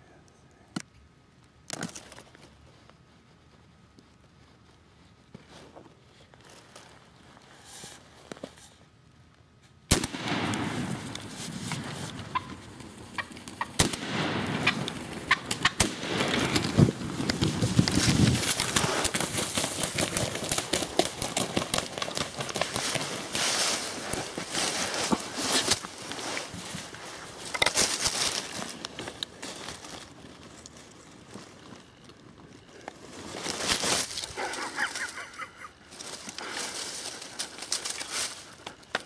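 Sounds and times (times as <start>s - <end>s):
wild turkeys rattling calls: 10.5s - 29.2s, 34.0s - 39.0s.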